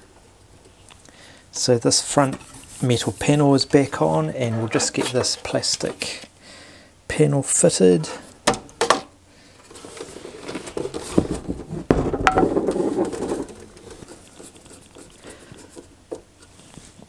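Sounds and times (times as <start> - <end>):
plastic scraping and rubbing: 4.3 - 6.3, 9.6 - 17.0.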